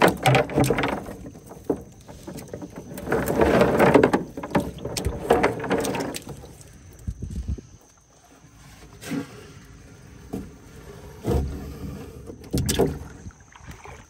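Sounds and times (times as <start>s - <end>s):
water splashing in a tub: 0.0s - 7.5s, 11.2s - 14.0s.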